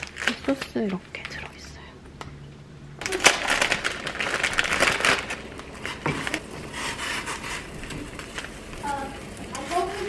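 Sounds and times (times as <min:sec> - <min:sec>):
plastic packaging crinkling: 0:00.0 - 0:01.5, 0:03.0 - 0:06.5
dry noodles crunching: 0:03.1 - 0:06.4.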